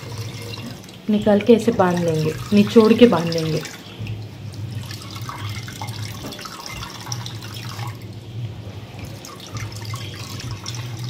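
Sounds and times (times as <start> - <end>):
juice dripping into steel bowl: 0.0 - 11.0
steady low hum: 0.0 - 11.0.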